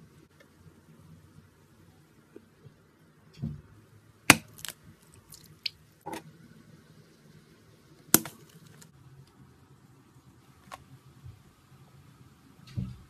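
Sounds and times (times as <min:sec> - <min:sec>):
soft squish: 0:04.3 - 0:05.8.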